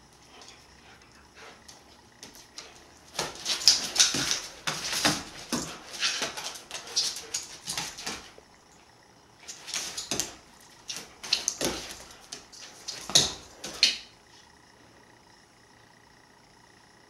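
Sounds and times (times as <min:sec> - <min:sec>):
dog claws clicking on wooden floor: 0:01.7 - 0:08.4, 0:09.4 - 0:14.1.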